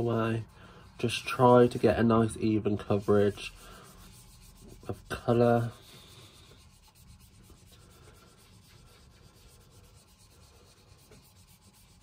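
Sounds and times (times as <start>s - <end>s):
sponge dauber rubbing on card: 0.0s - 12.0s.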